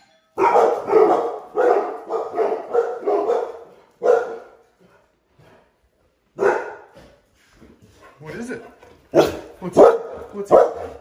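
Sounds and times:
dogs barking: 0.4s - 4.8s, 6.4s - 7.0s, 9.1s - 11.0s.

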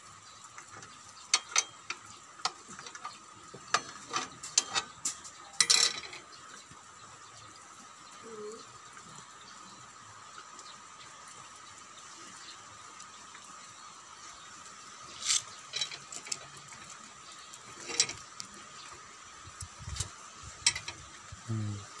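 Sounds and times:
metallic clicks and clinks: 1.3s - 6.3s, 15.2s - 17.1s, 17.7s - 18.3s, 19.6s - 21.2s.

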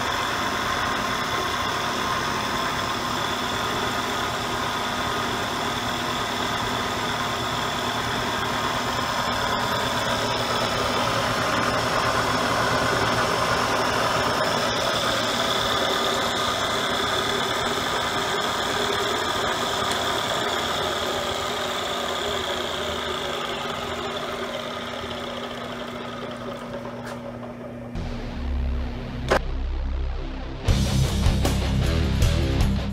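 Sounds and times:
milling machine hum and whine: 0.0s - 29.4s
music: 28.0s - 32.9s.

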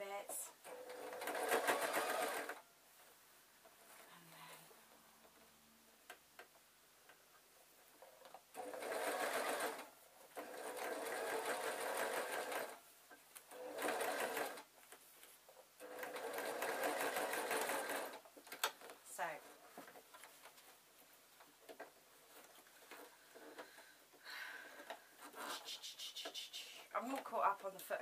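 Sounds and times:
sewing machine stitching: 0.6s - 2.6s, 8.5s - 12.8s, 13.5s - 14.7s, 15.8s - 18.7s.

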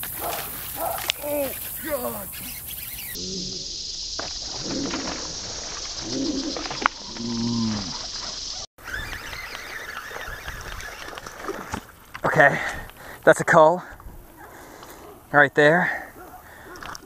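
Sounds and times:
steady outdoor hiss: 0.0s - 17.0s
slowed-down man's exclamation: 1.2s - 2.4s.

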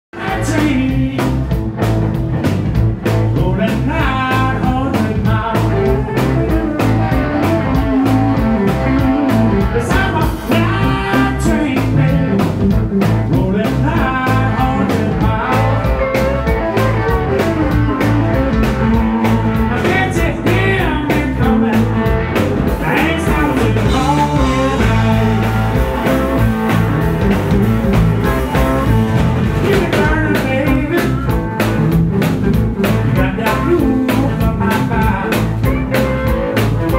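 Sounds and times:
drum kit beat: 0.1s - 36.9s
electric bass: 0.1s - 36.9s
electric guitars: 0.2s - 36.9s.

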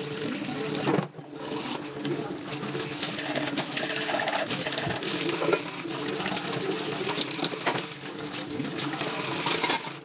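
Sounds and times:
tap water running into sink: 0.0s - 10.0s
dishes clinking against sink: 3.4s - 5.8s, 6.5s - 8.0s, 9.3s - 10.0s.

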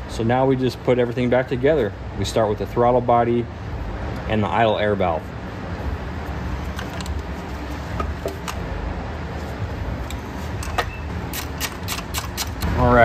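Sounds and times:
low background rumble: 0.0s - 11.3s
parts clicking and tapping: 6.6s - 7.3s, 7.9s - 8.7s, 10.0s - 12.7s.

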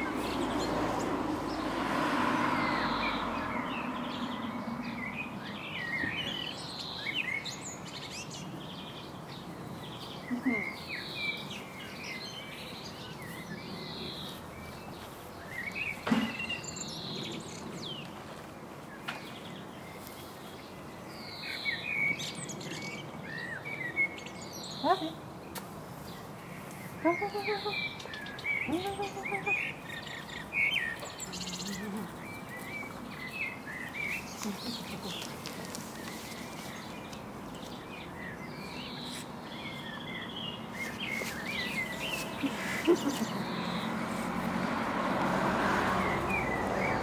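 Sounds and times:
songbirds chirping: 0.0s - 47.0s.

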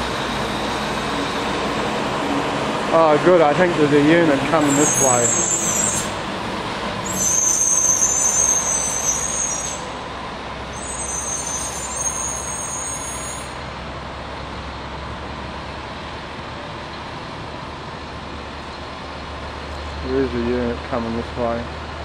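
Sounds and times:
garbage truck diesel engine: 0.0s - 22.0s
high-pitched squeal: 4.3s - 6.2s, 7.0s - 10.0s, 10.7s - 13.6s.

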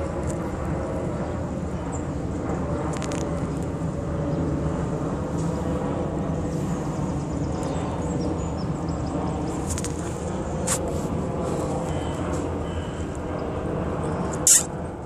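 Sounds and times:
distant traffic rumble: 0.0s - 15.0s
sharp click: 14.4s - 14.7s.

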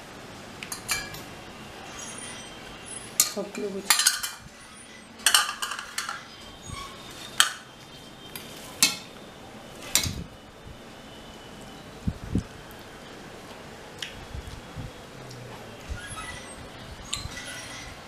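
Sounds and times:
steel bowls clinking: 5.2s - 6.3s.

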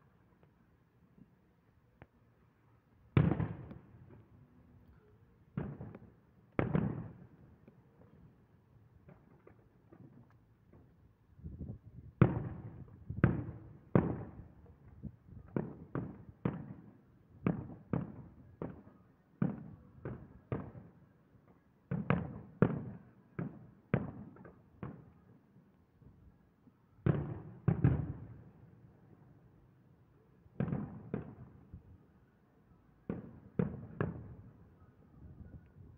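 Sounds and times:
distant fireworks bursting: 3.2s - 4.4s, 5.5s - 8.4s, 12.1s - 14.6s, 15.5s - 21.0s, 27.0s - 28.7s, 30.6s - 31.8s, 33.0s - 34.6s.

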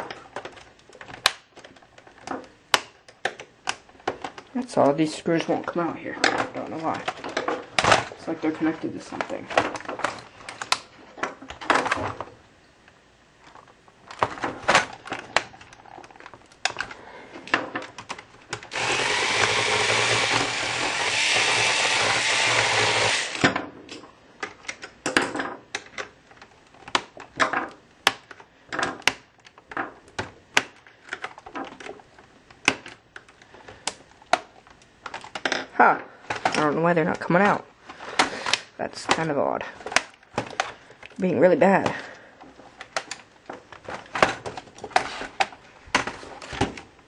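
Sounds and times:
handheld power tool motor: 18.6s - 23.5s.

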